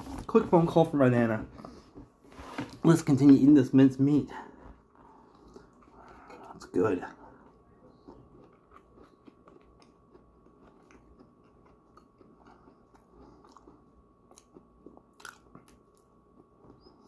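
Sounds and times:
faint high hum: 0.0 - 17.0
chewing: 4.9 - 17.0.

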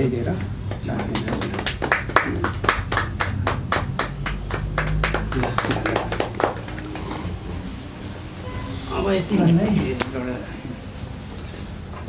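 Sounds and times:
people clapping: 0.2 - 7.6.

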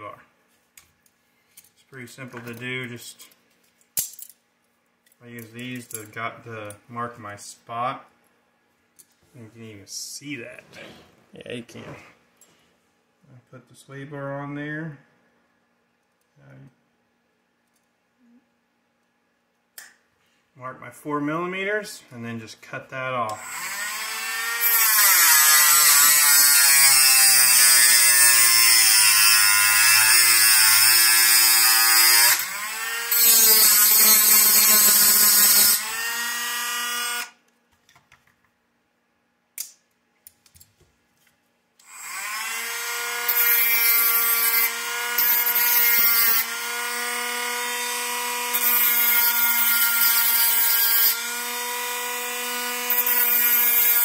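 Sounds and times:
rotary tool grinding metal: 23.4 - 37.3, 41.8 - 54.0.

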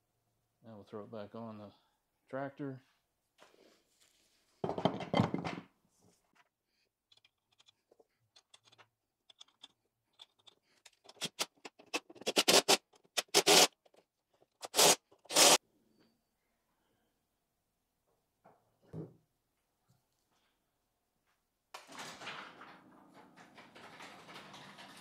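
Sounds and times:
cordless impact driver bursts: 14.8 - 15.6.

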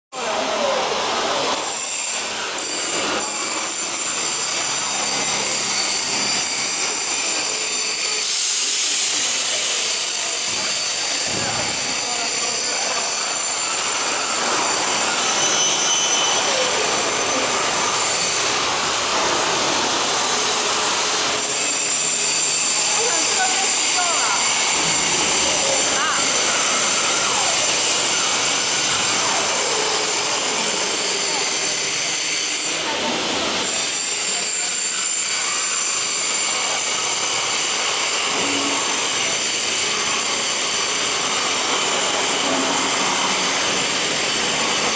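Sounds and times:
machine hiss: 3.6 - 32.8.

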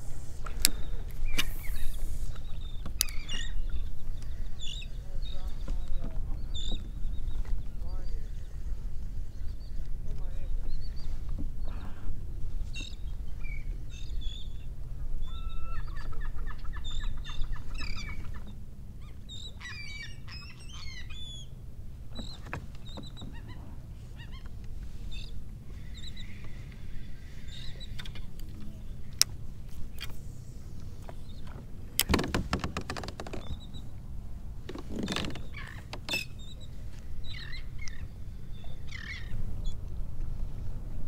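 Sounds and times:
gulls calling: 15.2 - 29.2, 34.7 - 39.8.

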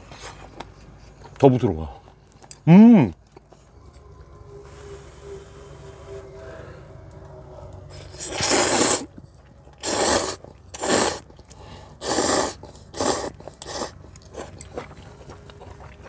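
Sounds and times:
person slurping noodles: 7.9 - 14.9.

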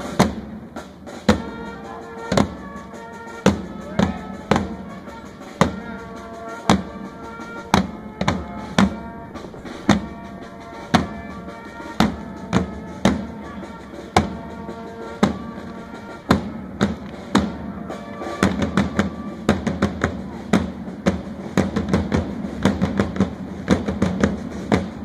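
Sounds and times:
held instrument notes: 0.0 - 20.5
parade drums beating: 0.0 - 25.0.

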